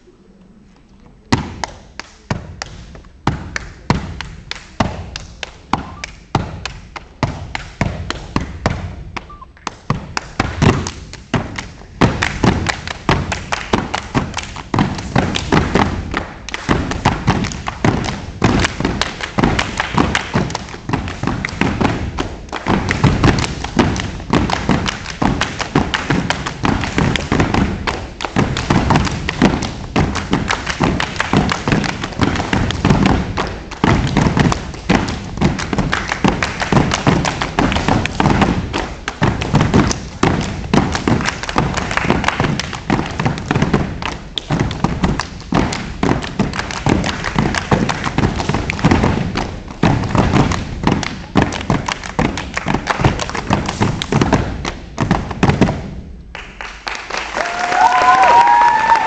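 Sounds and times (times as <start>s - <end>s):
hand claps: 1.3s - 59.0s
feet stomping on floor: 9.8s - 55.9s.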